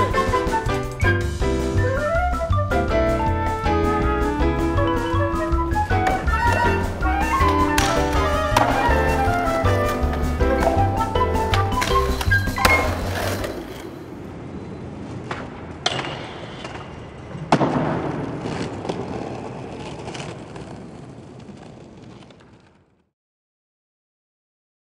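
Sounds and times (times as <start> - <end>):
music track: 0.0 - 13.5
skateboard wheels rolling: 0.0 - 23.1
skateboard cracking on ground: 6.0 - 14.2, 15.1 - 23.1.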